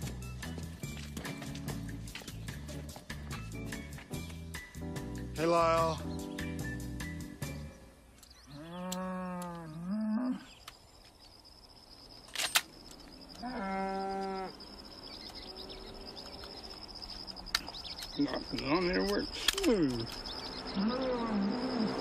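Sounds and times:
cow mooing: 8.5 - 10.5, 13.4 - 14.8, 20.7 - 22.0.

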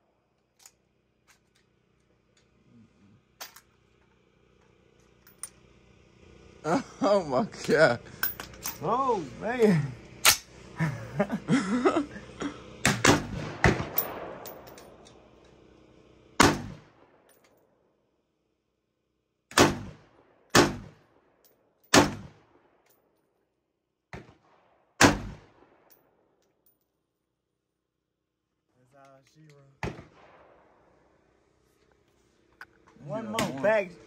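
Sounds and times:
gunshots: 12.8 - 14.4, 16.4 - 16.8, 19.5 - 21.0, 21.9 - 22.4, 24.2 - 25.7.

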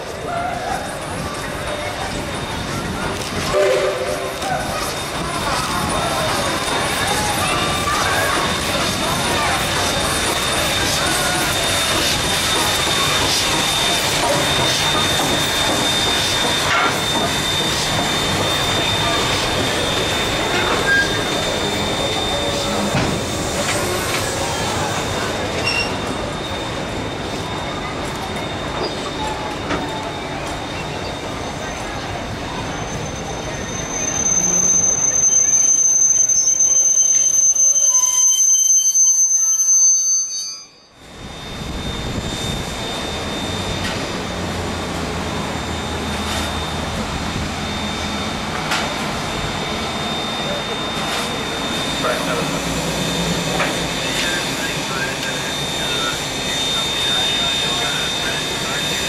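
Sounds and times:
train wheels rumbling on track: 0.0 - 40.2, 40.9 - 59.0
steam locomotive roar and hiss: 0.0 - 40.3, 40.9 - 59.0
high-pitched wheel squeal: 3.6 - 44.1.

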